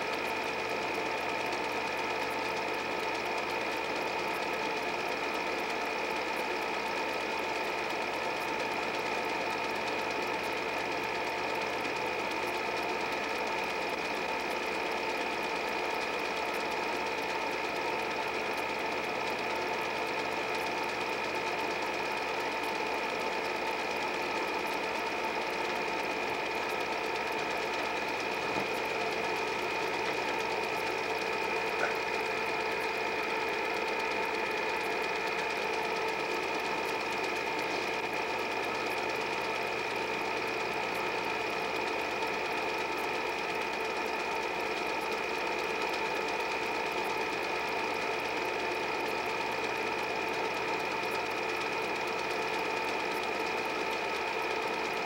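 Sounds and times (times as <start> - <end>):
film projector whirring: 0.0 - 55.0
constant hum: 31.6 - 32.3.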